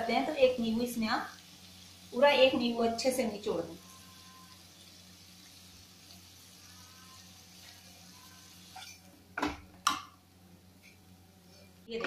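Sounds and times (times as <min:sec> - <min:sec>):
leaves sizzling in oil: 0:00.0 - 0:09.1.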